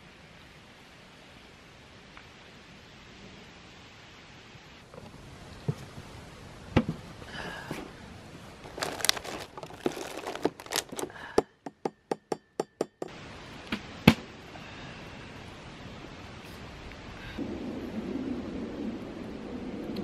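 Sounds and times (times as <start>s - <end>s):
crackling campfire: 0.0s - 11.4s, 13.1s - 20.0s
plastic cooler being handled: 8.6s - 11.2s.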